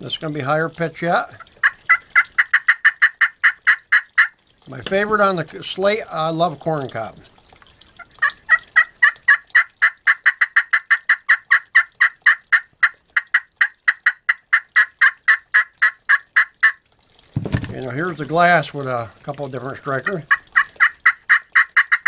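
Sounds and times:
pot turkey call rasping: 0:00.9 - 0:04.5, 0:07.7 - 0:16.8, 0:18.0 - 0:22.0.

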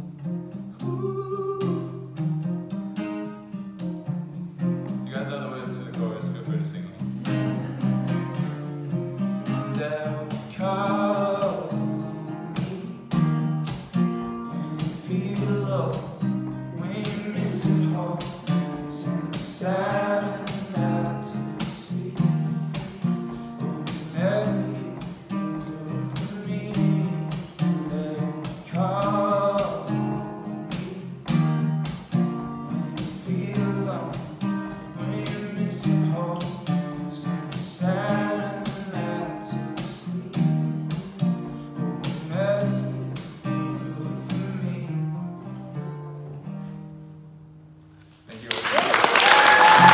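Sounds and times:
acoustic guitar strumming: 0:00.0 - 0:48.2
man singing: 0:00.8 - 0:02.2, 0:05.1 - 0:07.8, 0:09.4 - 0:13.2, 0:14.4 - 0:31.4, 0:32.5 - 0:45.2.

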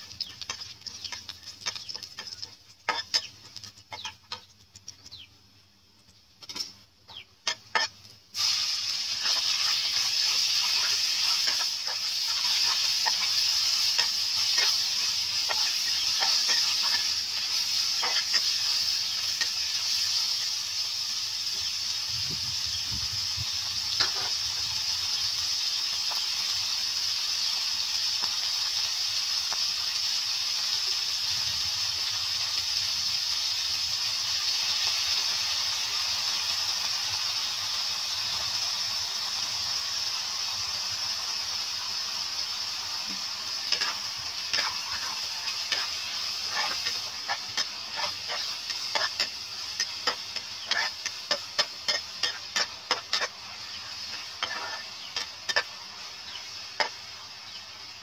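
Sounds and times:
metal spatula scraping a pan: 0:00.0 - 0:04.6, 0:06.4 - 0:06.8, 0:07.4 - 0:20.5, 0:23.9 - 0:24.4, 0:43.6 - 0:57.0
meat sizzling in oil: 0:00.0 - 0:05.2, 0:07.1 - 0:58.0.

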